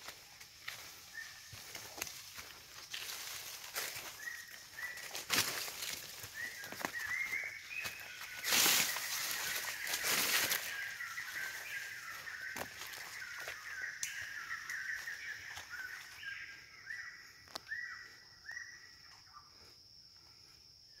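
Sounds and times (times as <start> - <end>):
birds calling: 0.0 - 19.7
high insect whine: 0.0 - 21.0.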